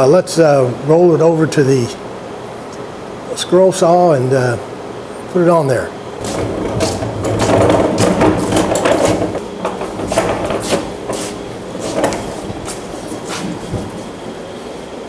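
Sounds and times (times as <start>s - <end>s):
caster wheels rolling on concrete: 6.2s - 14.4s.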